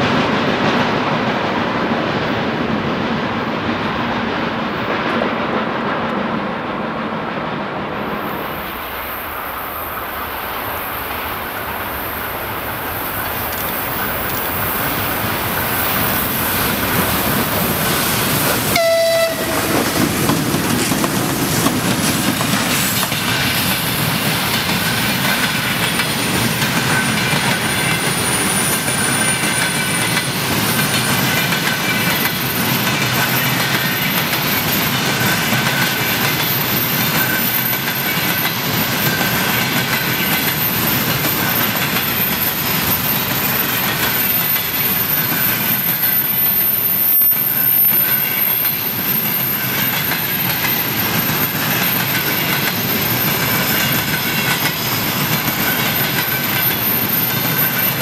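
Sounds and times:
train wheels clattering: 11.1s - 58.0s
train horn blast: 18.7s - 20.0s
wheel squeal: 32.5s - 58.0s.

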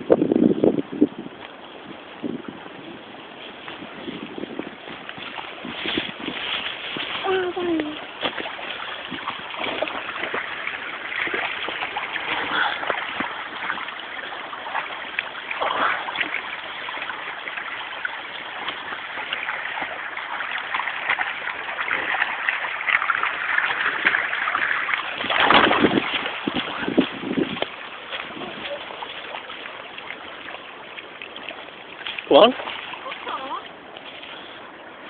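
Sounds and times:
brook running over stones: 0.0s - 35.0s
dog splashing through water: 3.6s - 34.5s.

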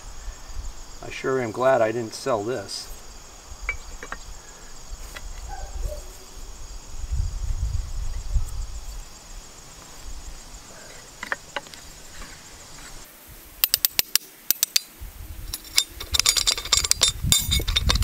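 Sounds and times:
faint crickets chirping: 0.0s - 18.0s
wrench clinking and rattling: 13.6s - 18.0s.

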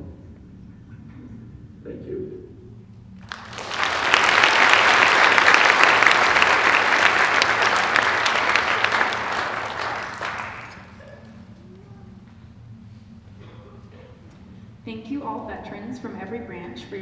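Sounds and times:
audience applauding: 3.2s - 11.4s.

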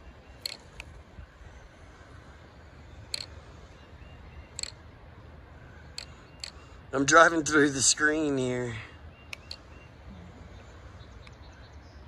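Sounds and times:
low steady rumble: 0.0s - 12.0s
faint sharp clicks: 0.4s - 1.0s, 3.1s - 3.4s, 4.5s - 4.8s, 5.9s - 6.6s, 9.3s - 9.7s, 11.2s - 11.4s.

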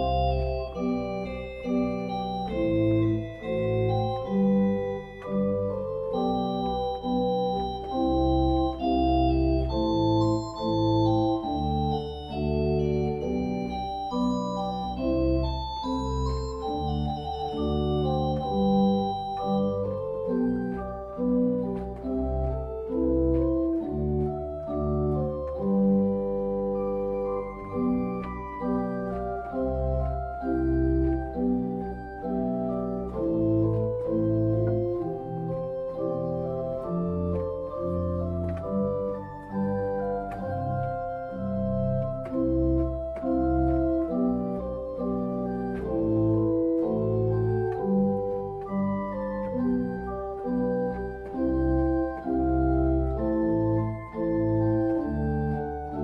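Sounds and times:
church organ playing: 0.0s - 56.0s.

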